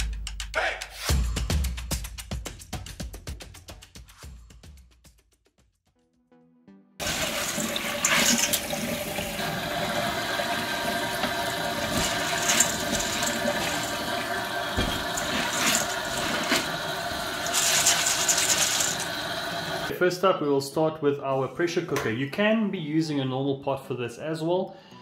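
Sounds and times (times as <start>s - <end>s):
tap water running: 7.0s - 19.9s
hands rubbing beans: 11.7s - 19.9s.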